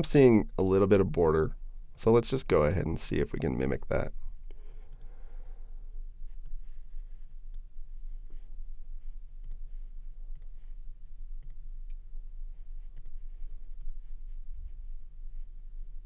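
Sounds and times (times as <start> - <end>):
low steady hum: 0.0 - 16.0
computer mouse clicks: 9.4 - 9.6, 10.3 - 10.5, 11.4 - 12.0, 12.9 - 13.2, 13.8 - 14.0.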